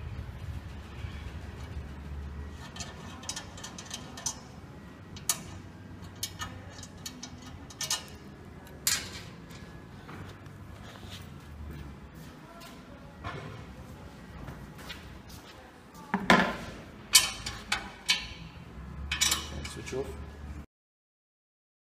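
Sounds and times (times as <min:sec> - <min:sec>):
metal guard clicking and clanking: 0:02.6 - 0:09.7, 0:17.1 - 0:20.2.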